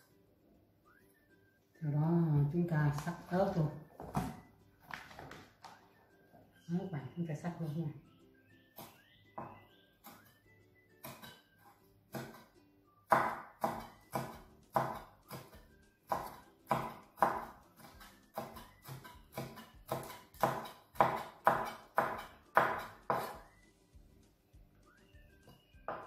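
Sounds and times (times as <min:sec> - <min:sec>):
cleaver chopping on wooden board: 0:12.1 - 0:12.5, 0:13.1 - 0:23.4.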